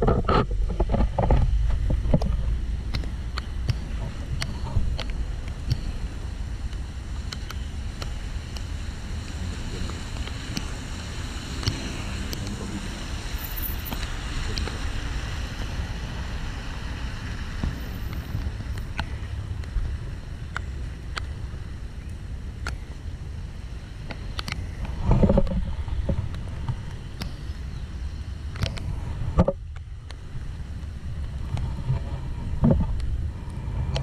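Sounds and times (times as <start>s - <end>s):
wind buffeting microphone: 0.0s - 34.0s
raindrops ticking on camera: 0.3s - 27.5s.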